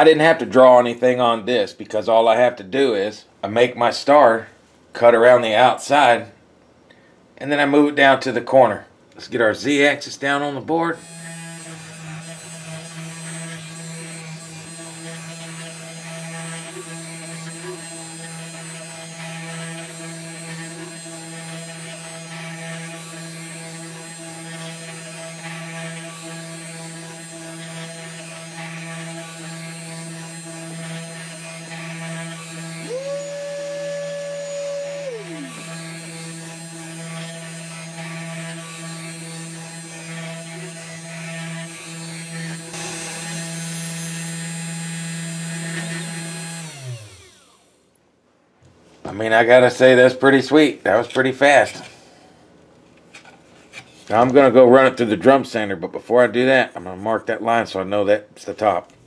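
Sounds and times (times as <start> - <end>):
cnc router cutting wood: 11.0 - 47.6
high motor whine: 32.5 - 36.8, 42.6 - 45.0.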